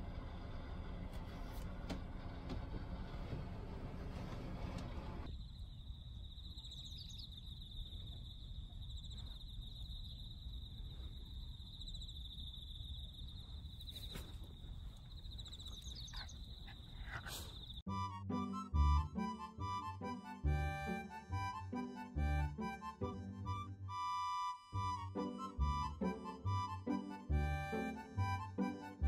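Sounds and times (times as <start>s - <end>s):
insect trilling: 5.3s - 17.9s
music: 17.9s - 29.0s.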